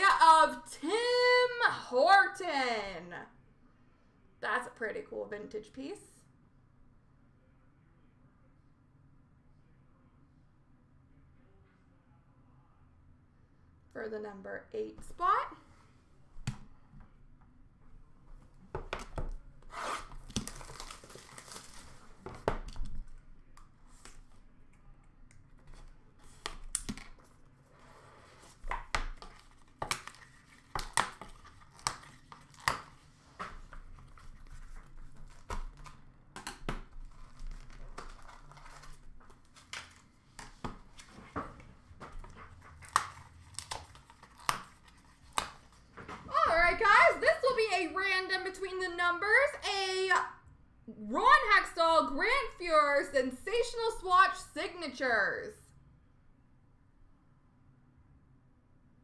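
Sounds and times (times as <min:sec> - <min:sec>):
packaging tearing and crinkling: 0:19.7 - 0:22.9, 0:29.1 - 0:36.0, 0:36.9 - 0:40.2, 0:42.2 - 0:45.8.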